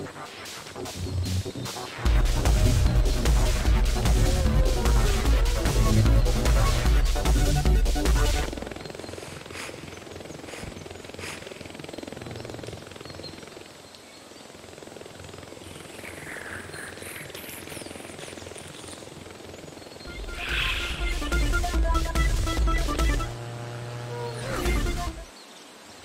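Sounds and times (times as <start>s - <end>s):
music: 0.0s - 8.8s, 20.0s - 25.3s
hummingbird wings whirring: 0.0s - 26.0s.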